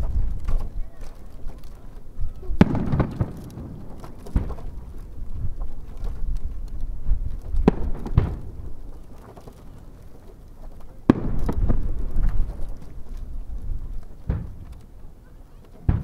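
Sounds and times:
firework bangs: 0:02.5 - 0:05.2, 0:07.5 - 0:09.0, 0:11.0 - 0:13.1, 0:14.1 - 0:14.9, 0:15.8 - 0:16.0.

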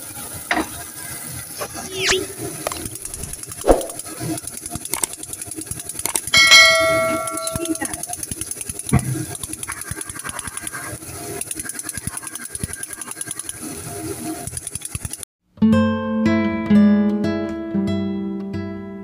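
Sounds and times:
chicken sizzling in a frying pan: 0:00.0 - 0:02.0
bell chime: 0:06.4 - 0:07.9.

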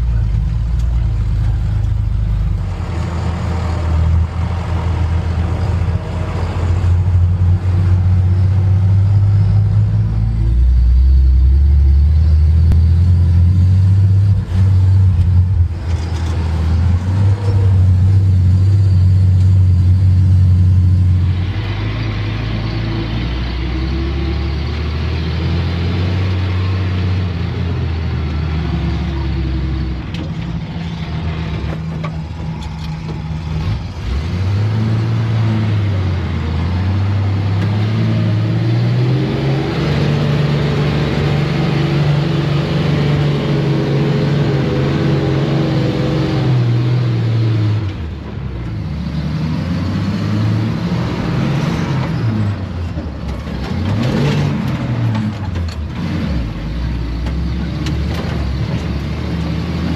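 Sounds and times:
truck engine driving through sand: 0:00.0 - 0:59.9.

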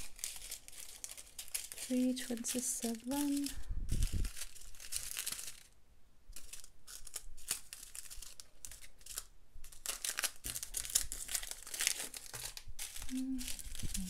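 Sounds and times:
plastic bags crinkling: 0:00.0 - 0:05.8, 0:06.4 - 0:14.0.

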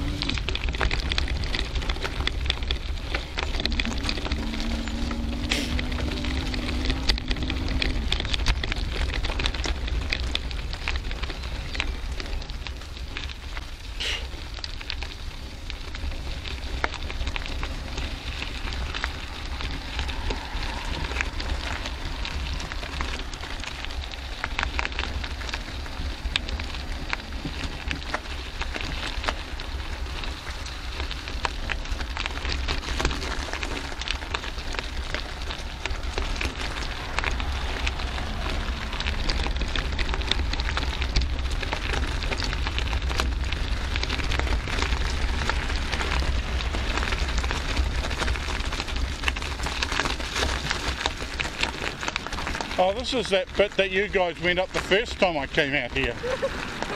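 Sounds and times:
bicycle tyres on gravel: 0:00.0 - 0:56.9
wind on microphone: 0:16.0 - 0:52.8.

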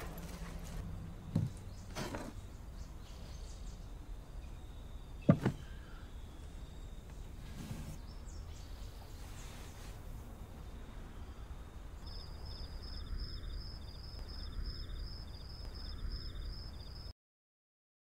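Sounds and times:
dull thumps: 0:00.0 - 0:02.4, 0:05.2 - 0:05.9.

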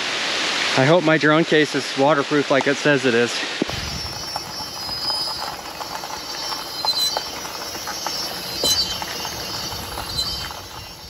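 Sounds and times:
short high squeals: 0:03.7 - 0:11.0
van rumbling in motion: 0:03.7 - 0:11.0.

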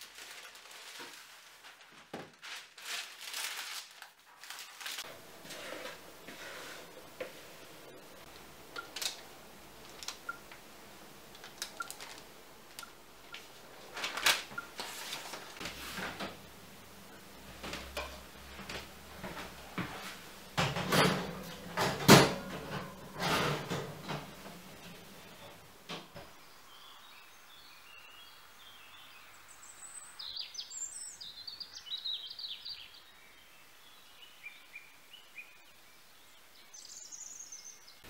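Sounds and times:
spatula scraping baking tray: 0:05.4 - 0:07.7, 0:19.8 - 0:24.2.

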